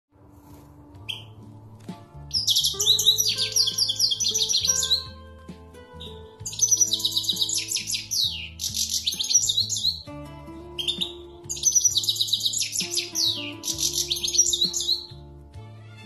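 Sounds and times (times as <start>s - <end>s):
faint music: 0.1s - 16.0s
goldfinch twittering song: 1.0s - 1.5s, 2.2s - 15.3s.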